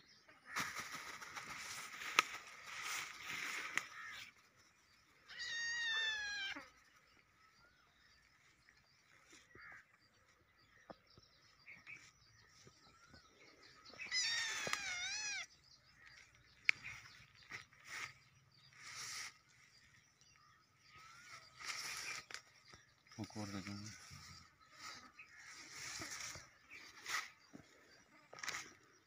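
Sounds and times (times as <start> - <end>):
kitten meowing: 5.3 - 6.6, 14.1 - 15.5.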